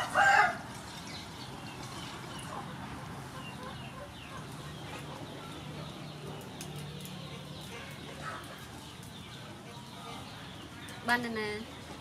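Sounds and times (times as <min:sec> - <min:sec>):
birds chirping: 0:00.8 - 0:12.0
chickens clucking: 0:02.1 - 0:11.3.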